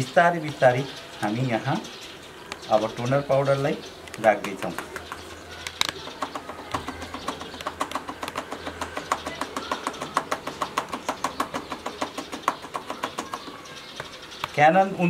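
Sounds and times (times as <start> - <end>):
plastic bottle tapping: 4.1 - 14.6.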